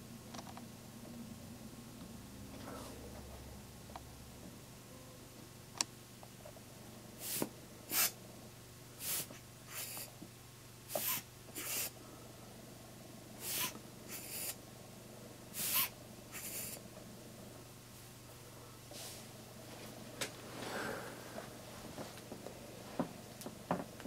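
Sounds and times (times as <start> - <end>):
rubber air blower puffing air: 7.2 - 8.2, 9.0 - 10.1, 10.9 - 12.0, 13.4 - 14.6, 15.5 - 16.8.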